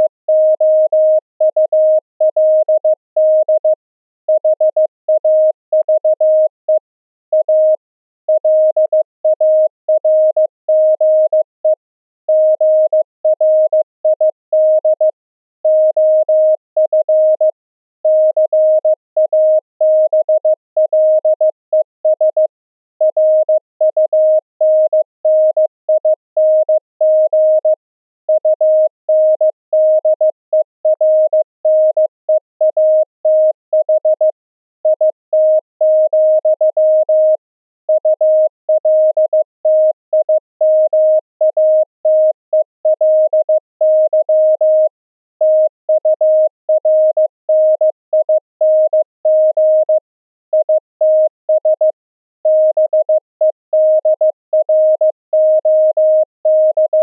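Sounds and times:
morse code beeps: 0:00.0 - 0:03.7, 0:45.5 - 0:50.0, 0:50.6 - 0:51.9, 0:52.5 - 0:53.2, 0:53.8 - 0:57.0.

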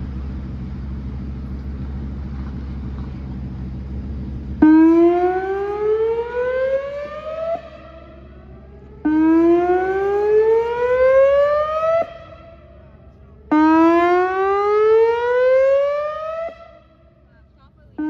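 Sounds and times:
warning siren rising tone: 0:04.4 - 0:17.3.

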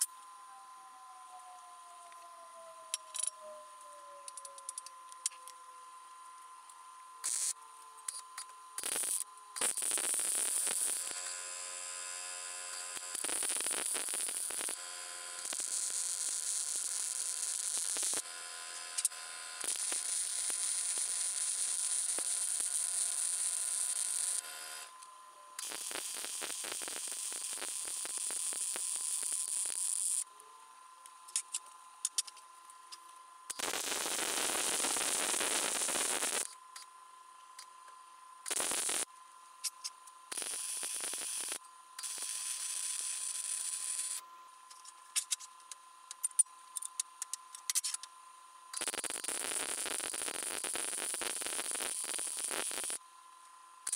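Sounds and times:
faint steady tone: 0:00.0 - 0:09.6
arc welding crackling and hissing: 0:07.2 - 0:30.3, 0:31.3 - 0:36.8, 0:38.4 - 0:44.2, 0:45.1 - 0:48.1, 0:48.7 - 0:53.0.

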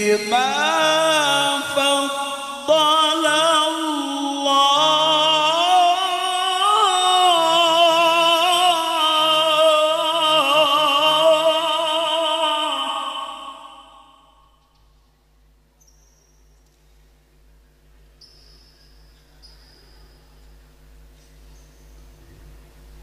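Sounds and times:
man chanting melodically: 0:00.0 - 0:14.4.

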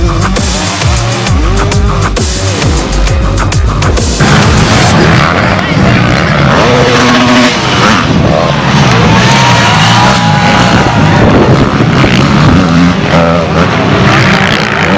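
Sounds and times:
motorcycle engines revving: 0:00.0 - 0:14.9.

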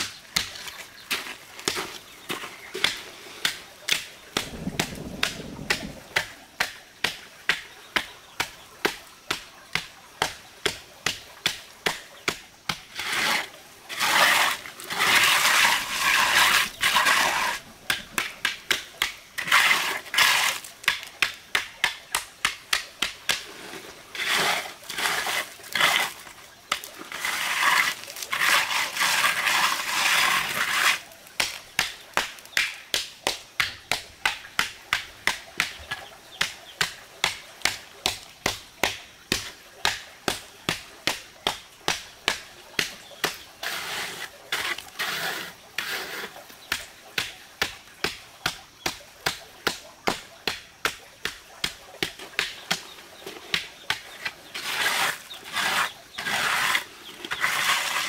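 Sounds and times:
trowel scraping gritty concrete: 0:00.0 - 0:04.2, 0:12.8 - 0:21.4, 0:23.4 - 0:32.6, 0:42.3 - 0:46.5, 0:52.1 - 0:58.0.

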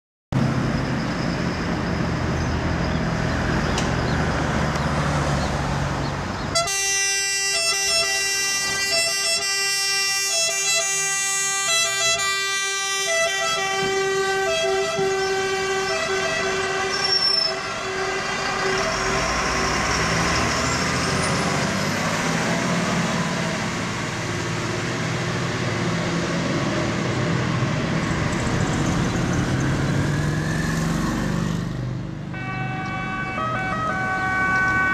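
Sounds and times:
road noise: 0:00.3 - 0:34.9
diesel engines running: 0:00.4 - 0:34.9
alternating-tone siren: 0:06.6 - 0:20.7, 0:32.3 - 0:34.9.

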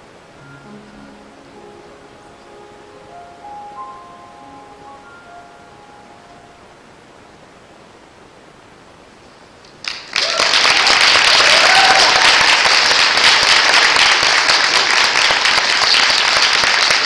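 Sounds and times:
audience applause: 0:09.7 - 0:17.0
voices cheering: 0:10.1 - 0:12.8.

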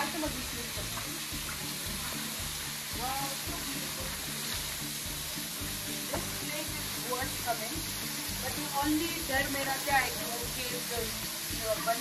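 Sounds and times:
waterfall rushing hiss: 0:00.0 - 0:12.0.

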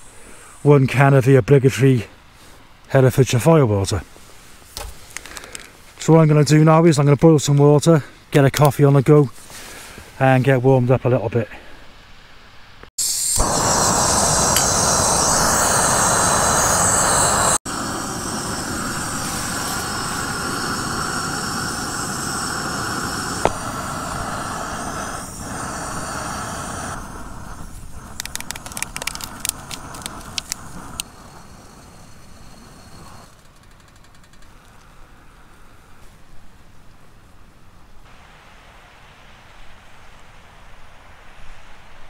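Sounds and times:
camping stove hissing: 0:00.0 - 0:01.0, 0:13.0 - 0:33.6
sharp clicks: 0:28.0 - 0:31.1, 0:33.3 - 0:34.9.

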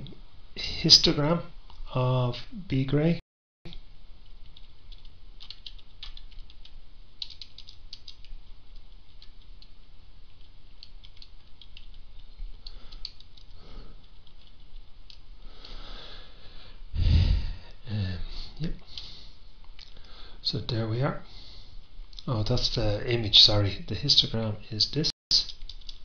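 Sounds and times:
low steady hum: 0:00.0 - 0:26.0
keyboard keys clicking: 0:04.4 - 0:09.7, 0:10.3 - 0:15.8, 0:25.5 - 0:26.0.

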